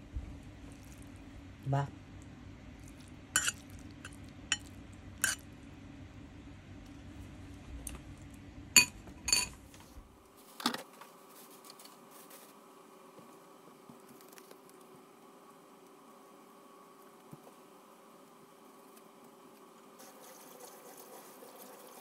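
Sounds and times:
low steady hum: 0.0 - 20.0
utensils clinking against plate: 3.4 - 5.4, 8.8 - 9.6.

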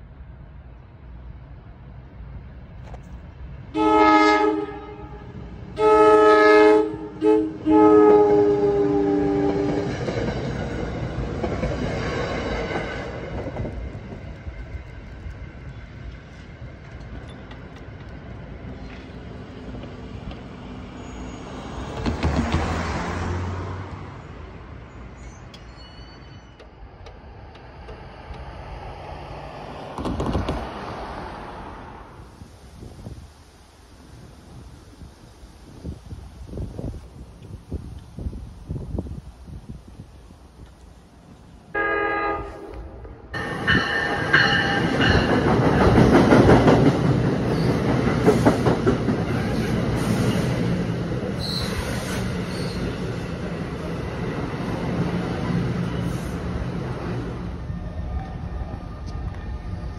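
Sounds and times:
train rumbling past: 0.0 - 59.9
train horn blasts: 3.7 - 9.9, 41.7 - 43.9.

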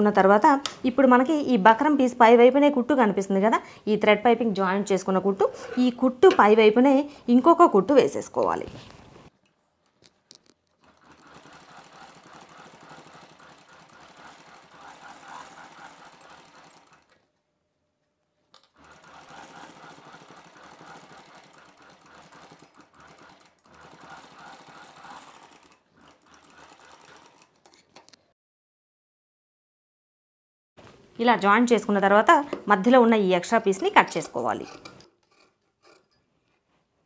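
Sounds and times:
sewing machine running: 10.8 - 17.2, 18.8 - 27.8.

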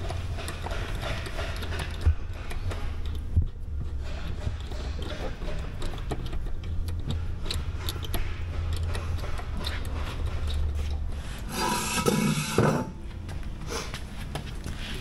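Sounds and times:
hand tools clicking and scraping: 0.0 - 15.0
loud rasping scrape: 6.9 - 13.0.

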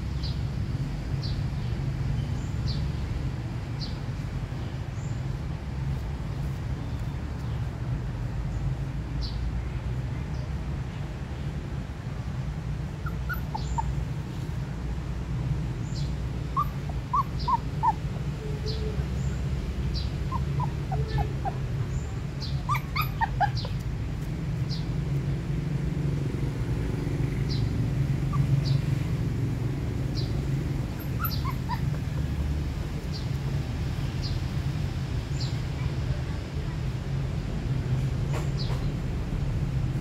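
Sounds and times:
puppies whimpering: 13.0 - 14.0, 16.5 - 19.0, 20.3 - 21.7, 22.4 - 23.8, 30.8 - 32.4.

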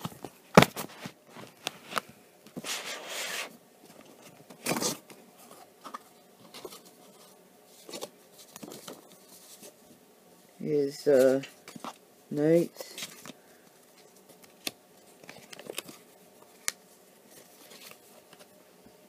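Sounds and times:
cardboard flaps and paper rustling: 0.0 - 9.8, 17.3 - 18.5.

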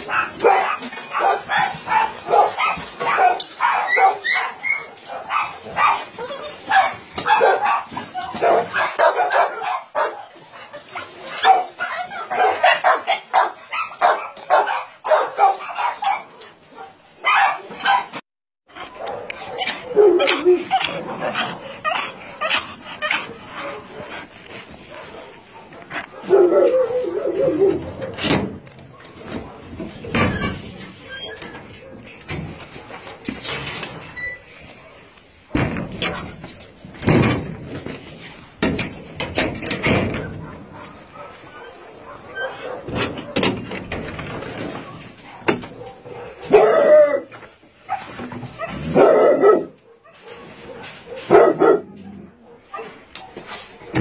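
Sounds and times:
dogs barking: 0.0 - 33.5, 39.7 - 54.0
dog yips: 0.5 - 9.8, 18.8 - 23.8, 40.4 - 43.4.

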